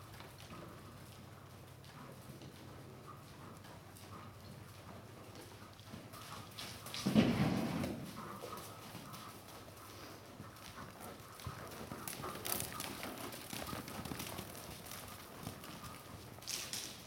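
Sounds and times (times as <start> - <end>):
hoofbeats on sand: 6.3 - 17.0.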